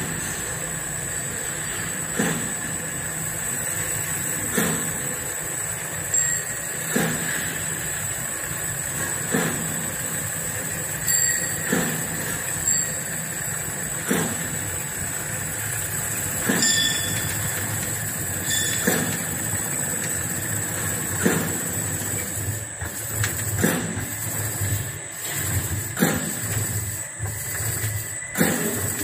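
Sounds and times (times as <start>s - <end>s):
machinery hum and whine: 0.0s - 29.0s
sharp machine knock: 2.1s - 2.7s, 4.4s - 5.1s, 6.2s - 7.7s, 8.9s - 29.0s.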